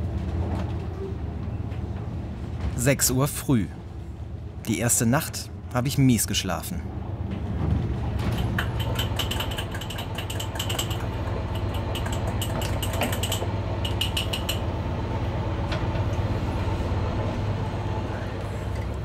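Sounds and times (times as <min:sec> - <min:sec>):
boat engine droning: 0:06.9 - 0:19.0
spoon clinking against mugs: 0:08.4 - 0:14.6.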